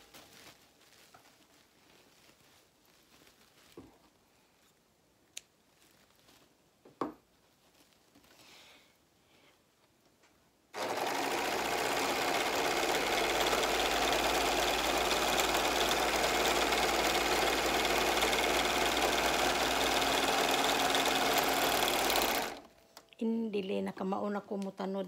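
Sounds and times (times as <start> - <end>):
overlock sewing machine running: 10.8 - 22.7.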